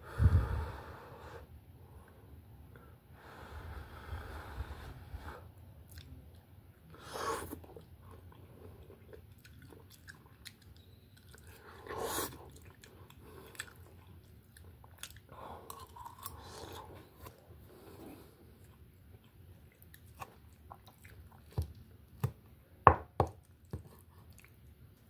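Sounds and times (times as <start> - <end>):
person chewing food: 7.4 - 22.4, 23.4 - 25.0.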